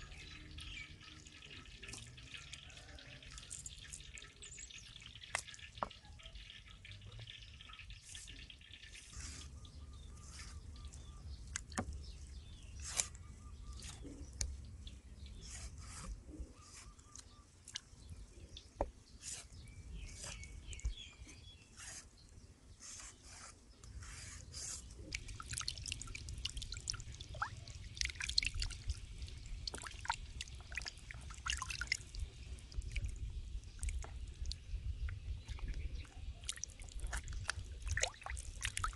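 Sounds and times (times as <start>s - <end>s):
water dripping: 0.0s - 9.0s, 17.1s - 18.0s, 25.0s - 38.9s.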